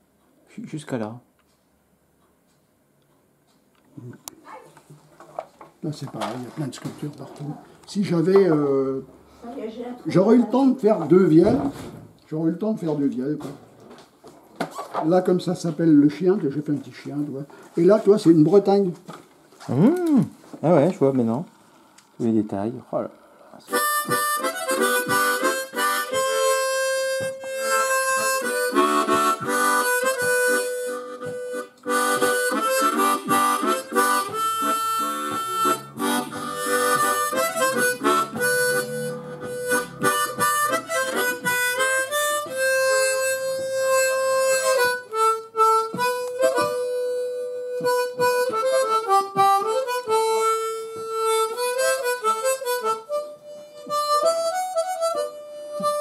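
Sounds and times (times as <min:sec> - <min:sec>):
harmonica playing a tune: 0:23.6 - 0:56.0.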